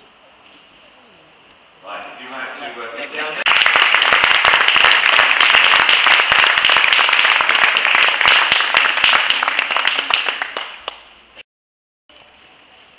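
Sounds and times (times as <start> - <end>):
audience applauding: 3.4 - 11.1.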